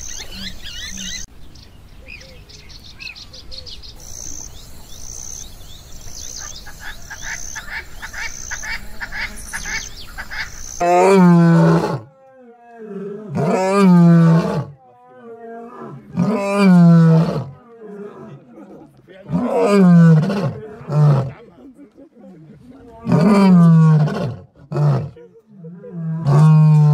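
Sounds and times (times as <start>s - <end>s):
birds chirping: 0.0s - 10.9s
insects chirping: 0.0s - 11.0s
lion roaring: 10.8s - 21.5s, 22.8s - 26.9s
lion grunting: 10.8s - 26.9s.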